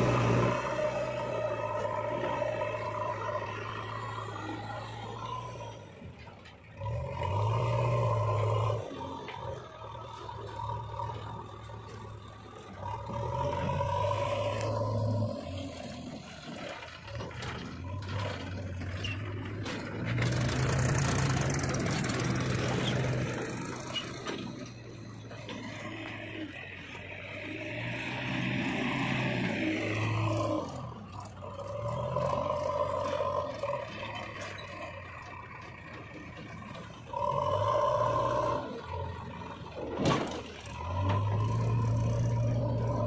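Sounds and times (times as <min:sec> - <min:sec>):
diesel engine revving: 0:00.0 - 0:43.0.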